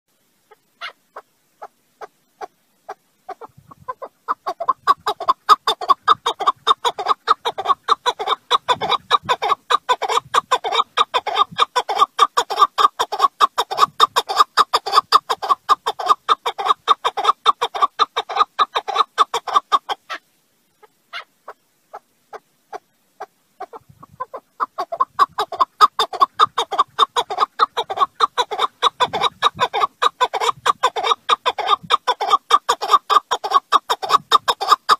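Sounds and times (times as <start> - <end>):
partridge calling: 0.5 - 20.2, 20.8 - 34.9.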